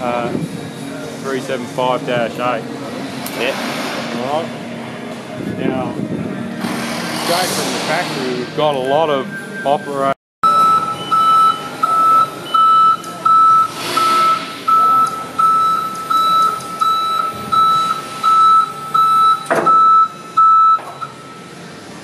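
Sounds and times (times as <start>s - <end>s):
warning alarm beeping: 9.2s - 21.3s.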